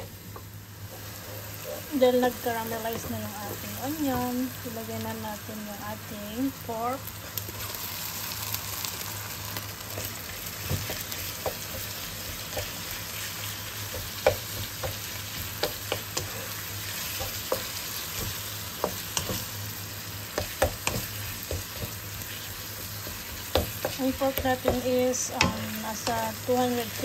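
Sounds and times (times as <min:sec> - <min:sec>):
meat sizzling in frying pan: 0:00.0 - 0:27.0
spatula scraping and tapping pan: 0:13.9 - 0:19.6, 0:20.3 - 0:22.4, 0:23.0 - 0:27.0.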